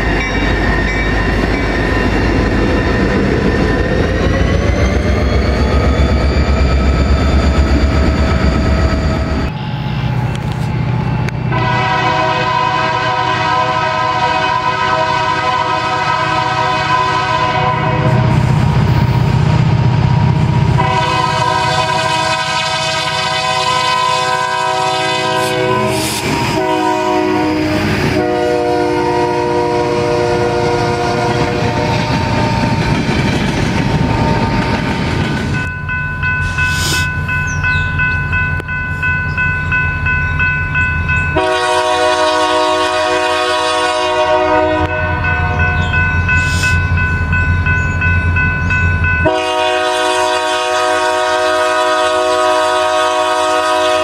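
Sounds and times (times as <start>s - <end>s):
crossing warning bell ringing: 0.0s - 54.0s
locomotive air horn: 11.5s - 18.6s, 20.7s - 32.1s, 41.4s - 45.8s, 49.2s - 54.0s.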